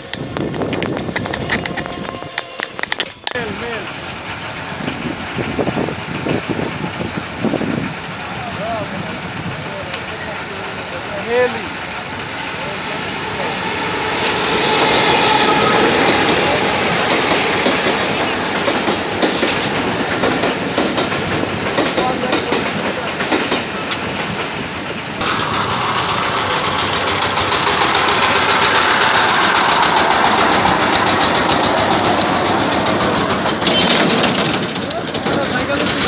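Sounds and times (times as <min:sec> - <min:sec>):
train wheels clattering over rails: 0:00.0 - 0:36.0
steady high ringing tone: 0:25.2 - 0:33.1.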